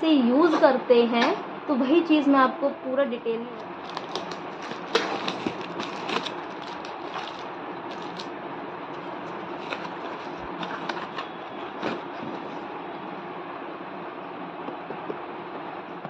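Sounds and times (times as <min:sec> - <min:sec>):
steady background noise: 0:00.0 - 0:16.0
cardboard flaps crinkling: 0:03.6 - 0:08.3, 0:09.0 - 0:12.7
tape peeling and tearing: 0:03.6 - 0:08.3.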